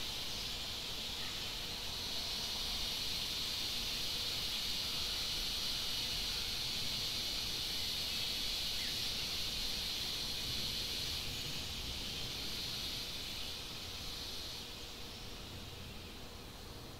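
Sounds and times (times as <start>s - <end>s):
high-pitched insect chorus: 0.0s - 16.9s
outdoor background noise: 0.0s - 16.9s.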